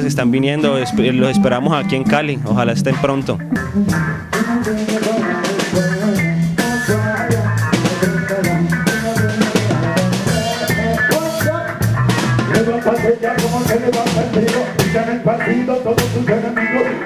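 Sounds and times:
drum kit: 0.0 - 17.0
electric bass groove: 0.0 - 17.0
reggae band playing live: 0.0 - 17.0.

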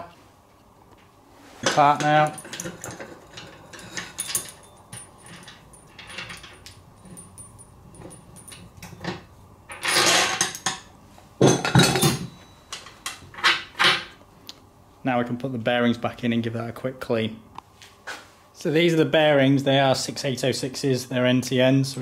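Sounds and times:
metal parts clinking: 1.6 - 14.0
metal rattling: 1.8 - 10.8.

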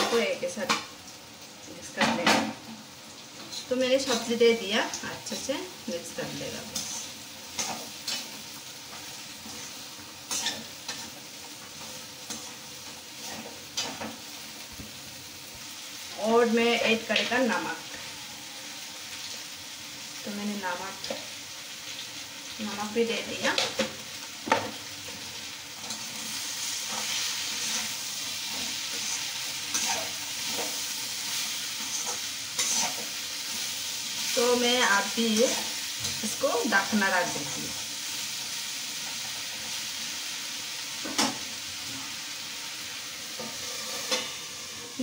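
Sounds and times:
vegetables sizzling in oil: 0.0 - 45.0
metal spatula scraping pan: 6.2 - 11.2, 25.8 - 34.4, 43.3 - 44.5.

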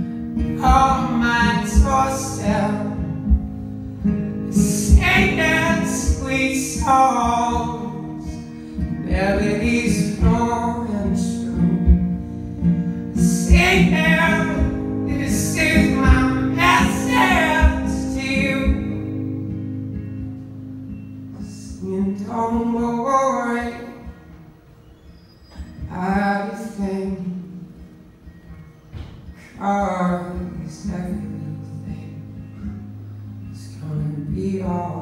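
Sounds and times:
acoustic guitar strumming: 0.0 - 35.0
man singing softly: 0.5 - 3.5, 4.5 - 8.4, 29.4 - 32.5.

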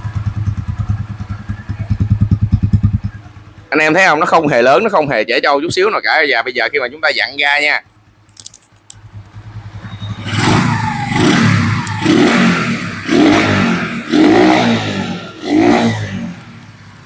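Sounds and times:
motorcycle engine revving: 0.0 - 3.6, 9.0 - 17.0.

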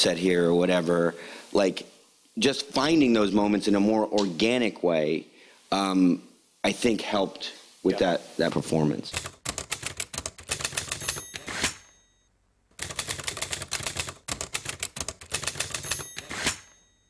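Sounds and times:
typewriter keys clacking: 9.2 - 11.8, 12.7 - 16.8
typewriter bell ringing: 10.5 - 12.2, 15.3 - 17.0.

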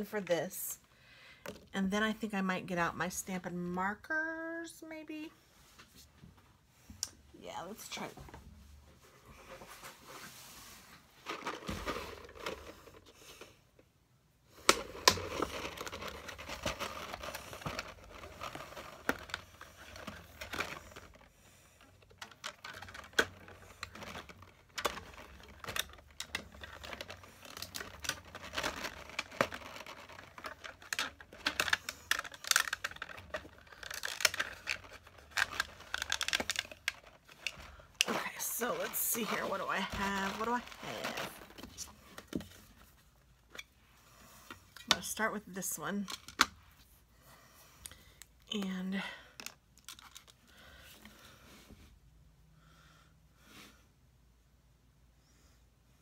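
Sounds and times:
plastic case crinkling: 11.2 - 13.5, 14.6 - 43.7, 49.4 - 50.5.

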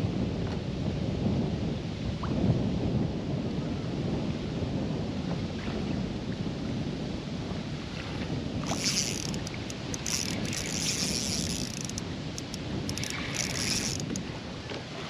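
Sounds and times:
wind buffeting microphone: 0.0 - 15.0
water lapping at kayak: 7.5 - 15.0
fishing reel whirring and clicking: 8.6 - 14.3.

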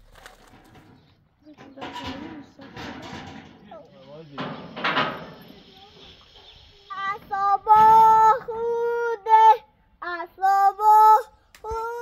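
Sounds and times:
child singing: 6.7 - 12.0.

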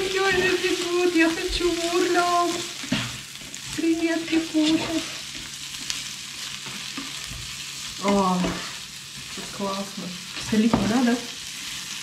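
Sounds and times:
food sizzling in a frying pan: 0.0 - 12.0
spatula scraping and tapping a pan: 2.5 - 3.6, 6.6 - 9.6, 10.4 - 11.1.

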